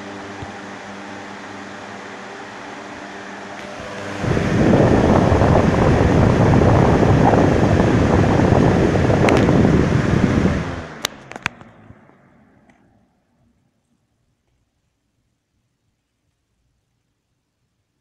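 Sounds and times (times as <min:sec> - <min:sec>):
box fan wind noise: 0:00.0 - 0:12.6.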